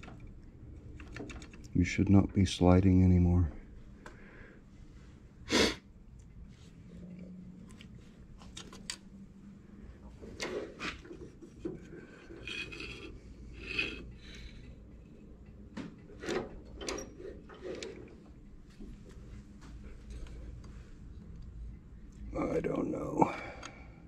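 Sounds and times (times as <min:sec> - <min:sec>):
short rasping scrapes: 0:12.2 - 0:14.1.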